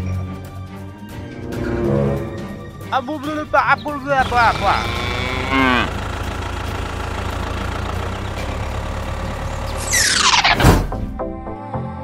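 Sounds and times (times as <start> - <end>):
tractor engine idling: 2.5 - 10.4
cow mooing: 4.2 - 6.3.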